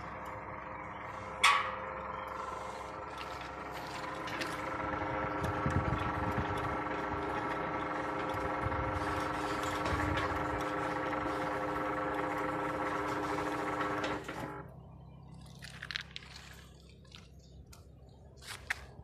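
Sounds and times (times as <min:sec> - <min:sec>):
gate motor whining: 0:00.0 - 0:15.0.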